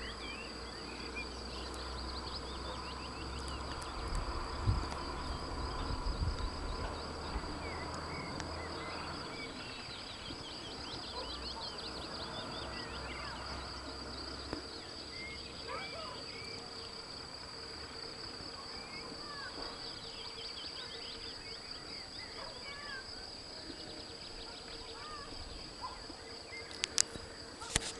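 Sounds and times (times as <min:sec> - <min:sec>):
high-pitched insect trill: 0:00.0 - 0:27.9
bird chirps and calls: 0:24.3 - 0:26.0.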